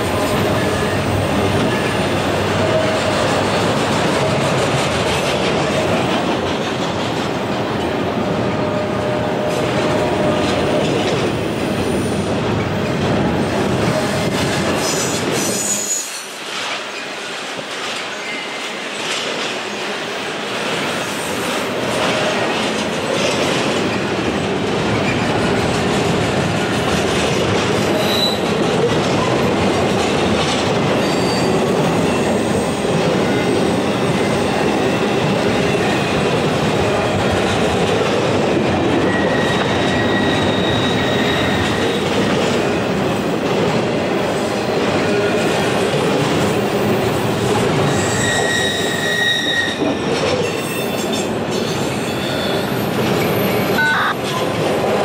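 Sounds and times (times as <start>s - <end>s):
train wheels rumbling on rail: 0.0s - 55.0s
faint high wheel squeals: 39.1s - 42.0s, 47.9s - 49.8s.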